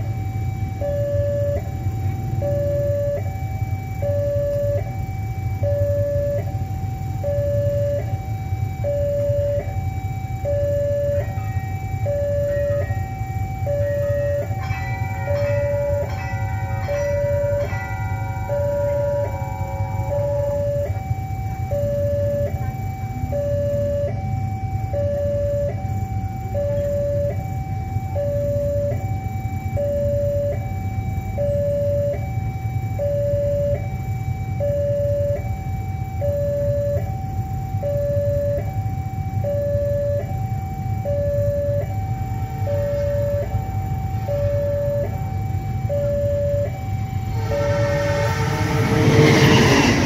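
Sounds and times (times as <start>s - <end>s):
two-tone level crossing alarm: 0.0s - 50.0s
steady low rumble: 11.8s - 33.4s, 44.3s - 50.0s.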